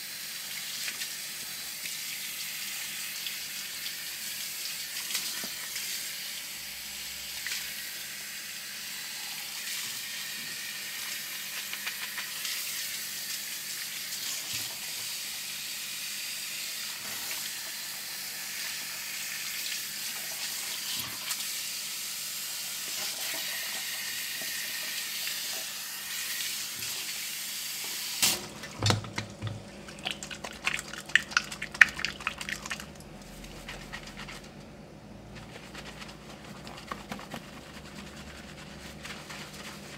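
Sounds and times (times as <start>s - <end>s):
shower sprayer water running: 0.0s - 34.6s, 35.3s - 39.9s
hands rubbing wet hair: 29.8s - 34.6s, 35.2s - 39.9s.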